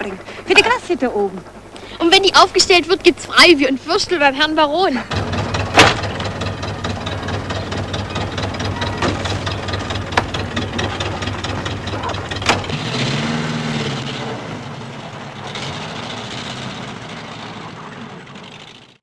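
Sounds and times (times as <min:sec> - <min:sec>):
sharp knock: 0:05.1 - 0:07.5
car engine running: 0:05.1 - 0:19.0.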